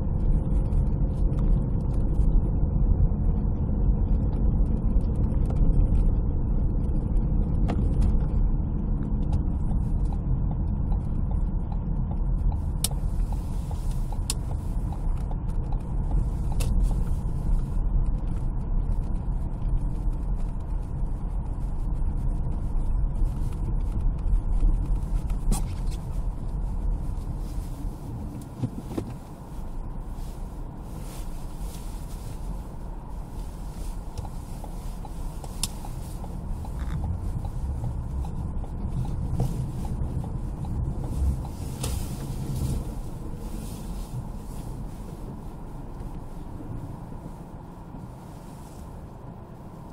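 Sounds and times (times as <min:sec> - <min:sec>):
engine and tyre rumble: 0:00.0 - 0:49.9
light regular ticks: 0:09.0 - 0:30.4, 0:31.0 - 0:46.8.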